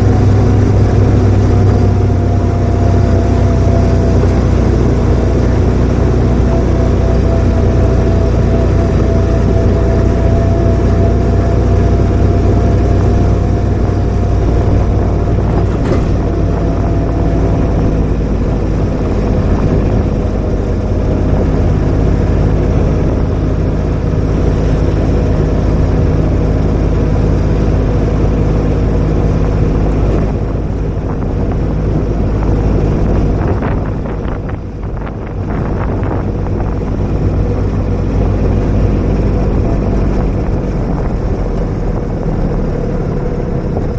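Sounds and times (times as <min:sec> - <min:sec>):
vehicle engine running: 0:00.0 - 0:43.9
rattling: 0:00.1 - 0:26.4.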